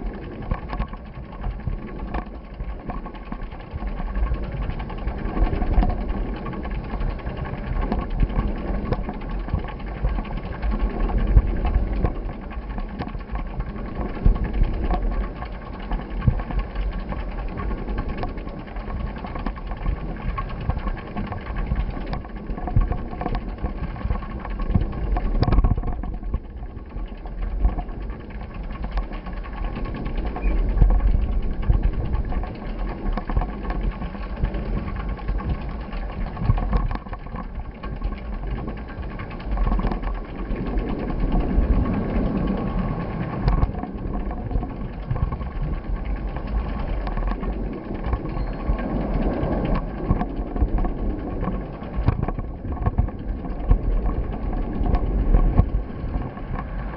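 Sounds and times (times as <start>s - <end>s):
wind rumble on microphone: 0.0s - 56.9s
short knocks and rattles: 4.8s - 40.4s.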